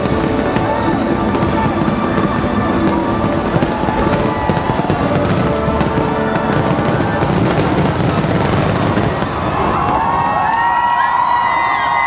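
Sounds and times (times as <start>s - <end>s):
loud music: 0.0s - 9.6s
fireworks crackling and popping: 0.0s - 11.1s.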